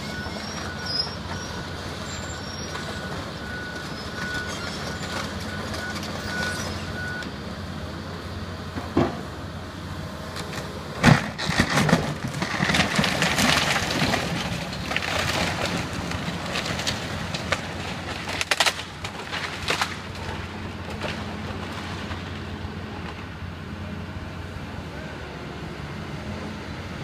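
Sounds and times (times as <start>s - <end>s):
excavator engine running: 0.0s - 27.0s
debris cracking and clattering: 10.5s - 22.4s.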